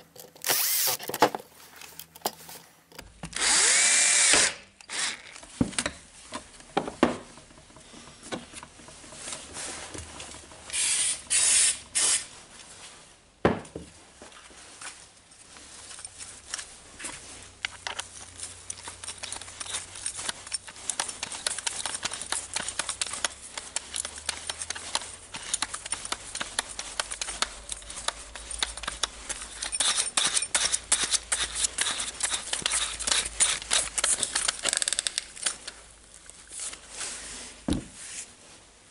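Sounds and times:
drill chuck clicks and rattles: 0:00.0 - 0:05.4, 0:18.7 - 0:35.8.

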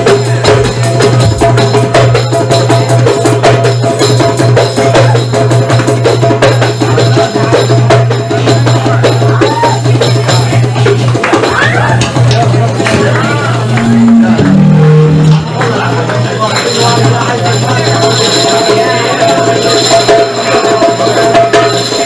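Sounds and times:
hand-drum beats: 0:00.0 - 0:22.0
low keyboard tone: 0:13.7 - 0:16.2.

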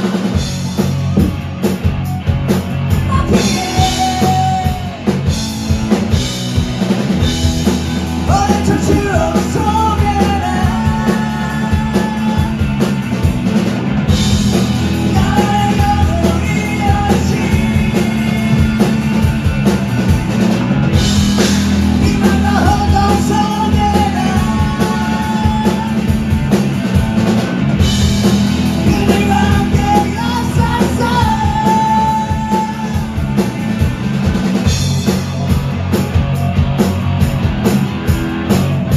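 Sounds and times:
drum kit: 0:00.0 - 0:38.9
electric guitar: 0:00.0 - 0:38.9
lead singer singing: 0:03.0 - 0:05.3, 0:08.2 - 0:13.0, 0:14.8 - 0:19.5, 0:21.3 - 0:26.6, 0:28.6 - 0:33.6.

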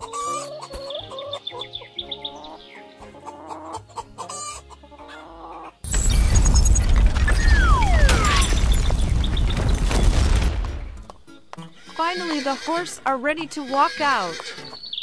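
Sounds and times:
chickens clucking: 0:00.0 - 0:05.8
light background music: 0:00.0 - 0:05.9, 0:10.5 - 0:15.0
loud rumbling noise: 0:05.9 - 0:11.0.

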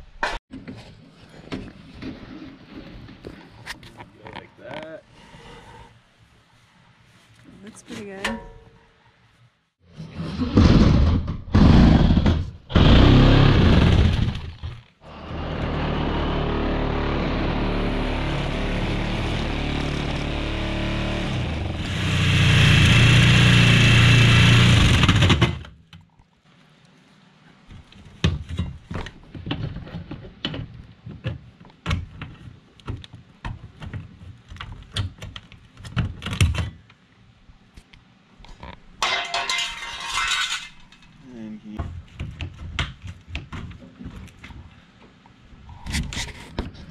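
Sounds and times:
handheld power tool running: 0:15.1 - 0:25.5.

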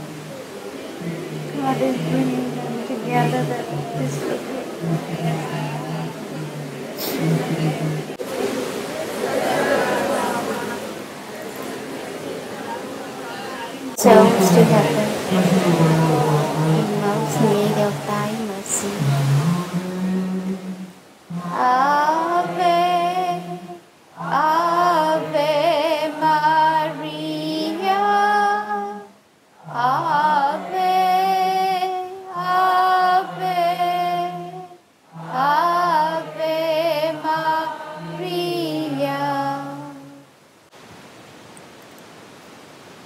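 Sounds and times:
low held instrument notes: 0:00.0 - 0:08.2, 0:14.0 - 0:25.5
woman singing a hymn: 0:01.5 - 0:06.0, 0:14.0 - 0:19.3, 0:21.3 - 0:40.2.

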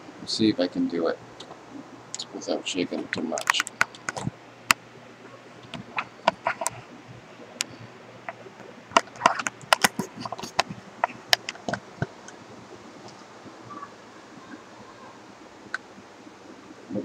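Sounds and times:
faint low hum: 0:00.0 - 0:17.0
handheld camera clicks and knocks: 0:09.0 - 0:12.1.

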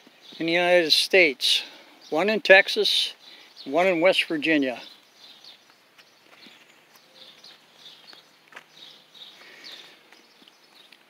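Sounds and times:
faint high-pitched bird chirps: 0:04.8 - 0:11.0.

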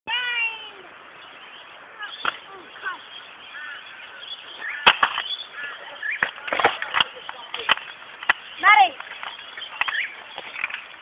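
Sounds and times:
short chirping calls: 0:01.1 - 0:06.4, 0:07.0 - 0:11.0.

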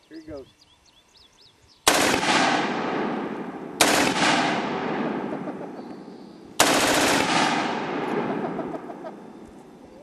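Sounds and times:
machine gun firing bursts: 0:01.9 - 0:03.2, 0:03.8 - 0:05.6, 0:06.6 - 0:08.9.

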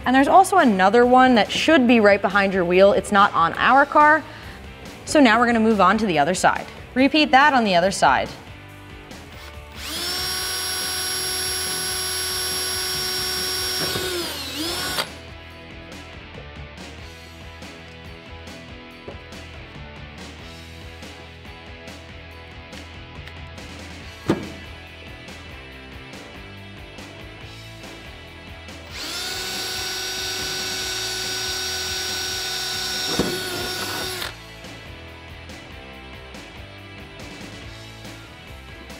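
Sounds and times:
background music: 0:00.0 - 0:38.9
cordless drill whining: 0:09.3 - 0:15.2, 0:28.9 - 0:34.4.

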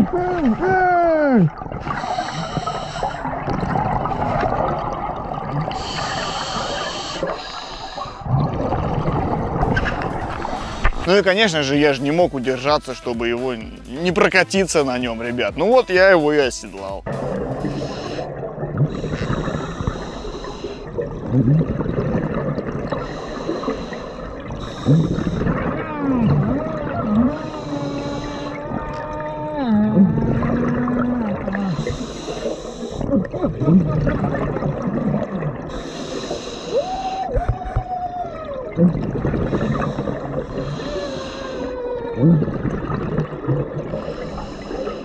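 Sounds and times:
bubbles gurgling underwater: 0:00.0 - 0:11.2, 0:17.0 - 0:36.5, 0:37.3 - 0:45.0
diver breathing through regulator: 0:01.8 - 0:04.8, 0:05.6 - 0:08.4, 0:10.0 - 0:11.1, 0:17.0 - 0:21.1, 0:22.9 - 0:25.7, 0:27.2 - 0:28.8, 0:30.4 - 0:33.1, 0:35.6 - 0:37.4, 0:39.3 - 0:42.6, 0:43.8 - 0:45.0
drawn-out moaning tone: 0:24.8 - 0:32.1.

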